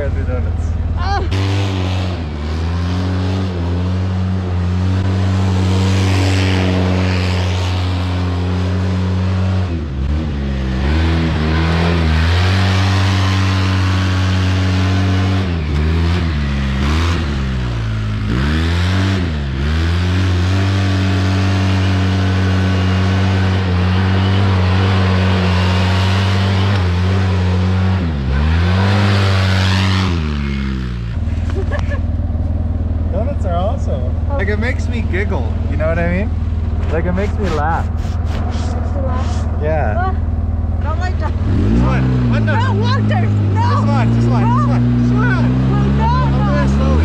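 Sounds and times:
engine revving at high revs: 0:01.0 - 0:32.0, 0:40.8 - 0:47.0.

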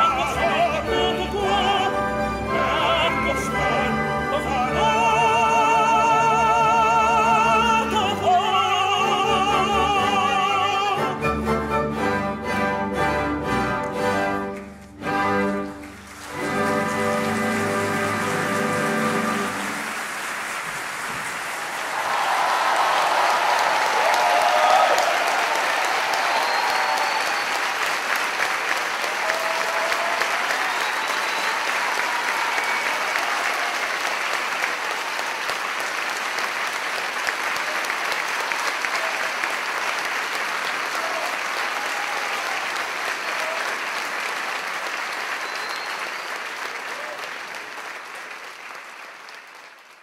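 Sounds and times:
audience applauding: 0:13.8 - 0:50.0.

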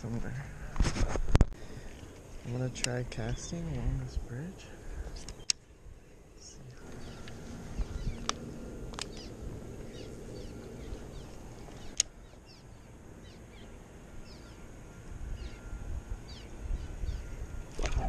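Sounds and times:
small birds chirping: 0:01.6 - 0:18.0
low rumble: 0:05.9 - 0:12.2
sharp clicks: 0:11.8 - 0:12.1.

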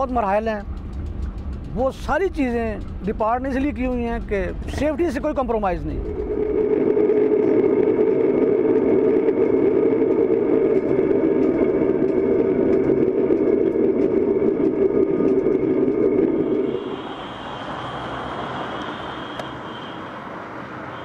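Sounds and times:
diesel locomotive drone: 0:00.0 - 0:21.0.

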